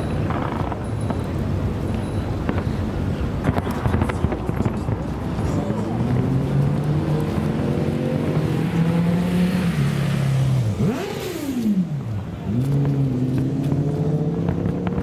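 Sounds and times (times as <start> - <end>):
engine revving: 5.4 - 15.0.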